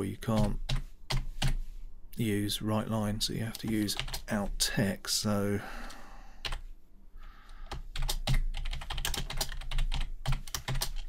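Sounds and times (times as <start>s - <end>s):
keyboard typing clicks: 7.7s - 11.0s.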